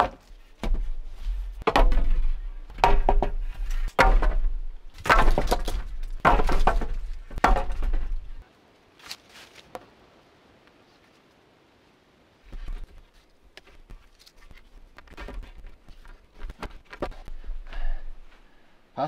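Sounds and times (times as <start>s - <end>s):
bamboo poles knocking on floor: 1.6s - 4.4s, 5.0s - 8.3s.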